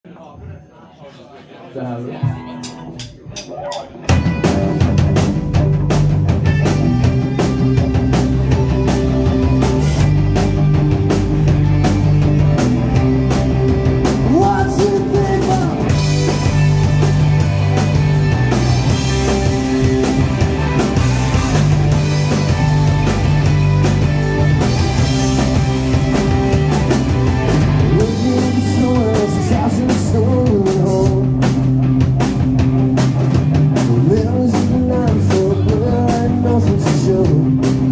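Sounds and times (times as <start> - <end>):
rock band playing live: 2.2 - 37.9
person singing: 14.2 - 16.4, 27.8 - 31.5, 33.9 - 37.9.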